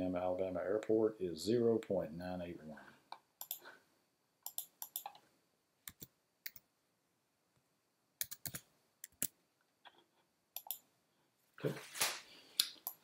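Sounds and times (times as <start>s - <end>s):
computer keyboard keystrokes: 4.5s - 5.2s, 8.2s - 9.3s.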